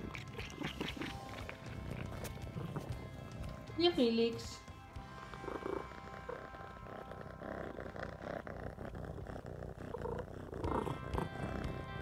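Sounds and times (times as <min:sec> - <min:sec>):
cat purring: 0:00.0 - 0:12.0.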